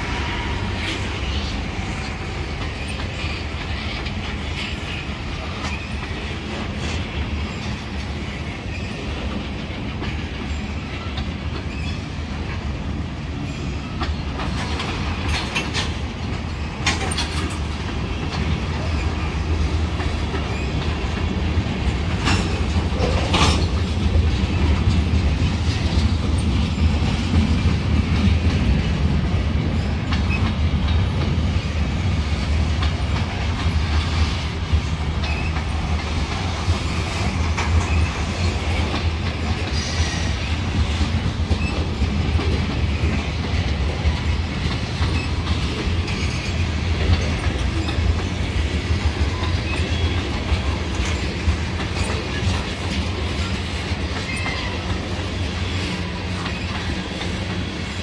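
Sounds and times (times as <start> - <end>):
train wheels rumbling on rails: 0.0 - 58.0
wheels clacking over rail joints: 0.0 - 58.0.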